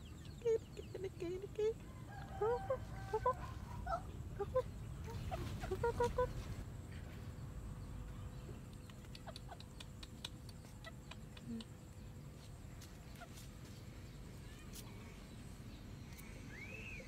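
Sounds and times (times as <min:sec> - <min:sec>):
chicken pecking at dirt: 0:08.6 - 0:13.8.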